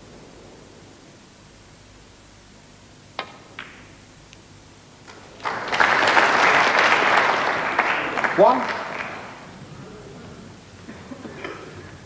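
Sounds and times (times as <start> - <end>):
snooker balls clicking: 3.2 - 4.4
audience applause: 5.1 - 9.8.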